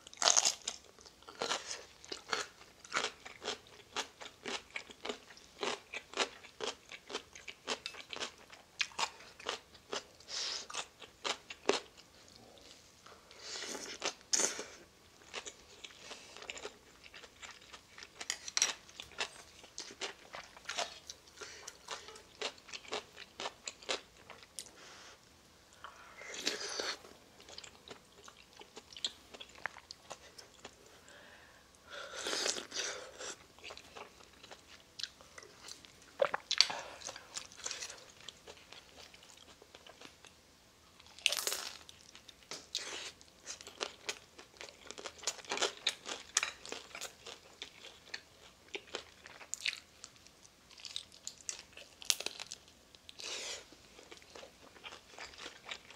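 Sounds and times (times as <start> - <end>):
wet chewing and crunching: 0.0 - 12.0, 41.0 - 55.9.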